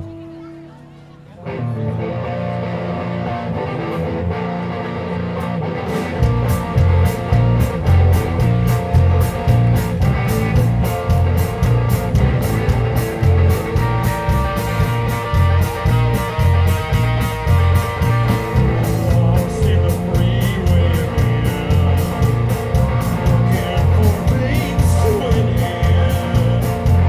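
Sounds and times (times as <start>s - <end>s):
electric guitar: 0.0s - 27.0s
drums with busy cymbals: 6.2s - 27.0s.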